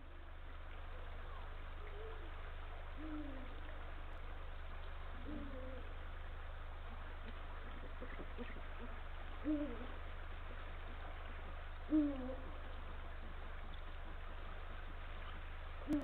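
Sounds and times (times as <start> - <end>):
steady low hum: 0.0 - 16.0
owl hooting: 0.9 - 3.8, 5.0 - 6.1, 7.2 - 10.1, 10.8 - 13.3.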